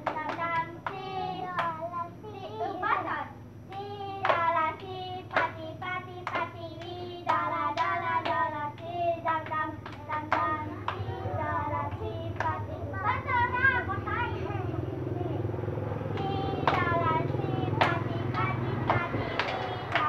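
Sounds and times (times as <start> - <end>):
hand claps: 0.0 - 1.8, 3.7 - 5.6, 6.2 - 11.1, 11.9 - 12.6, 16.2 - 17.0, 17.8 - 20.0
children singing: 16.1 - 20.0.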